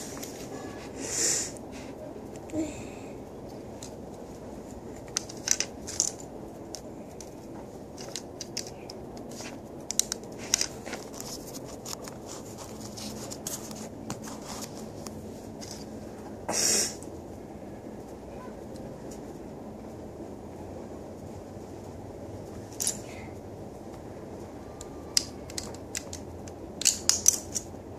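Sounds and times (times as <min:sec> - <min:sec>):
plastic bricks clicking together: 0:05.1 - 0:07.3, 0:07.9 - 0:11.3, 0:25.2 - 0:27.7
scraping rustle: 0:07.0 - 0:16.4.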